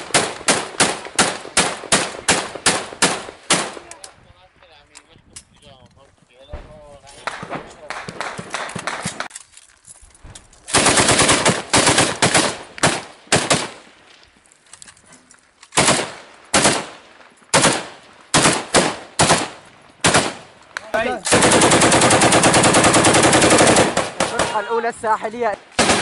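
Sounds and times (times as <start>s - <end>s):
machine gun firing: 0.0s - 3.9s, 10.7s - 13.8s, 15.8s - 24.6s, 25.7s - 26.0s.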